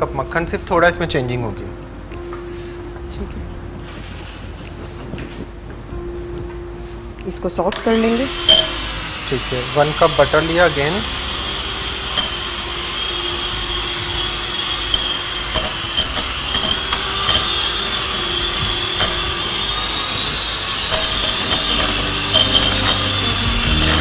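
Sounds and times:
electric hand mixer running: 0:07.7 - 0:24.0.

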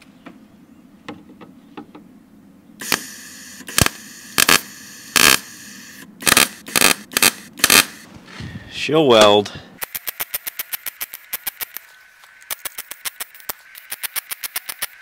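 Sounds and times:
welder arc crackling and popping: 0:02.8 - 0:08.1, 0:10.9 - 0:15.0.

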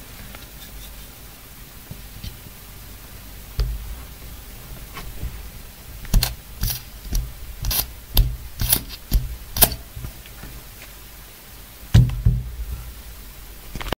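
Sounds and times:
gas hissing spurts with clicks: 0:03.6 - 0:11.0.

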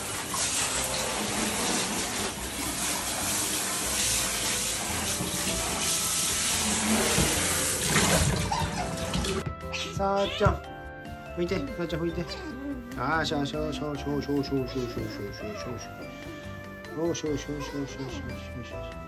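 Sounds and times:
shower spray into water: 0:00.0 - 0:09.4.

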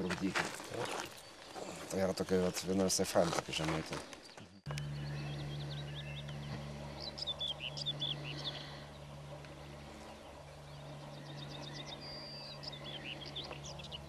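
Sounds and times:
songbirds chirping and trilling: 0:00.0 - 0:14.0
low hum: 0:04.1 - 0:14.0.

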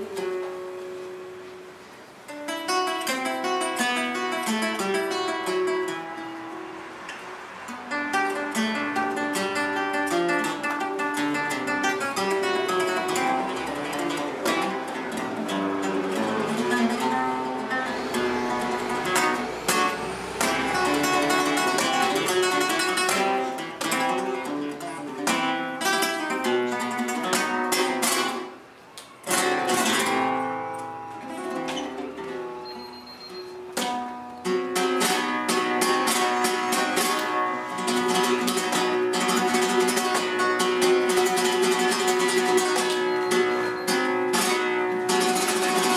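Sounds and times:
flamenco acoustic guitar: 0:00.0 - 0:45.9.

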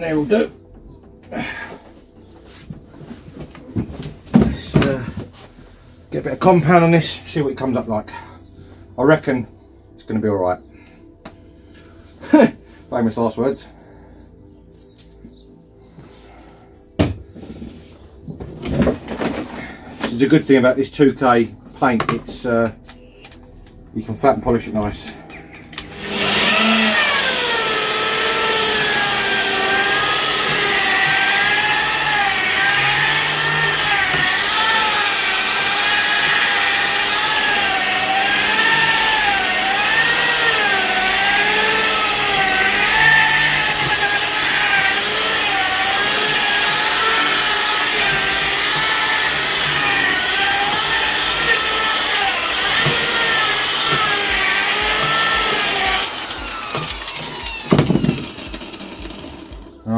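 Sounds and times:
paint polisher motor whine: 0:25.0 - 0:59.7.

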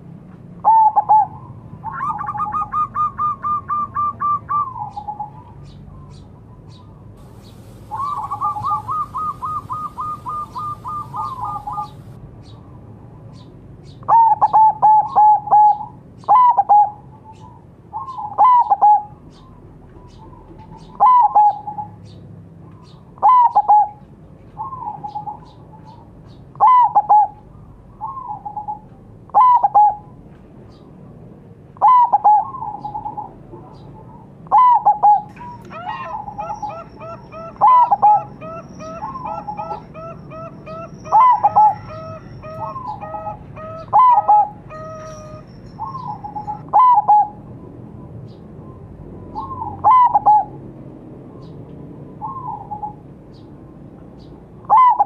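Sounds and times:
dove cooing: 0:00.6 - 0:05.4, 0:07.2 - 0:12.2, 0:14.1 - 0:19.2, 0:20.3 - 0:22.0, 0:23.2 - 0:24.0, 0:24.6 - 0:26.0, 0:26.6 - 0:27.4, 0:28.0 - 0:30.1, 0:31.8 - 0:47.5, 0:49.3 - 0:50.6, 0:52.2 - 0:53.0, 0:54.6 - 0:55.0
bird fast repeated notes: 0:07.2 - 0:12.2
faint high chirps: 0:07.2 - 0:12.2.

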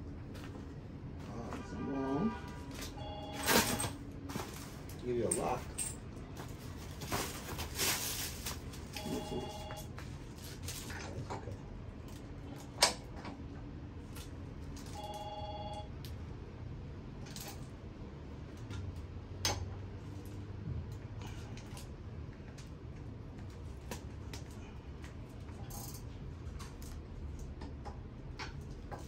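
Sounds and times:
tools and parts clattering: 0:02.6 - 0:09.8, 0:25.4 - 0:27.0
short electronic beeps: 0:03.0 - 0:03.8.

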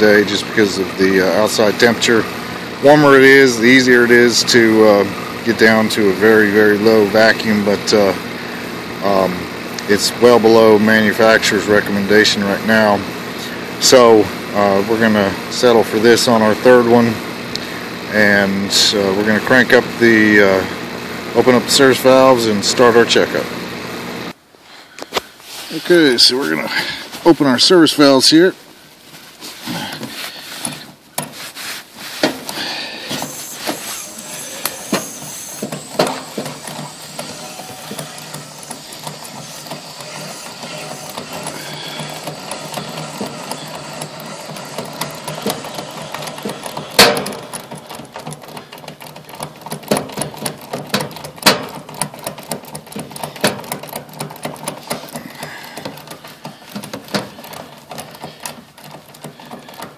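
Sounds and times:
tool clicking on metal valves: 0:32.2 - 0:59.9.

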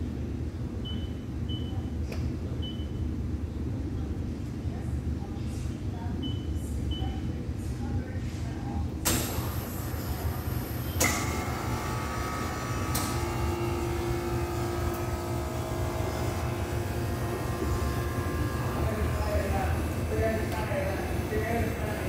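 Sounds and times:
ice cream machine hum: 0:00.0 - 0:22.0.

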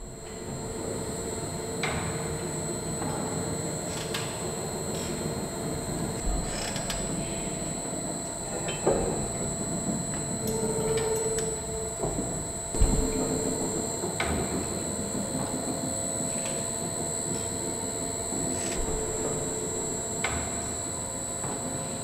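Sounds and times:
sharp mechanical knocks: 0:12.7 - 0:14.3.

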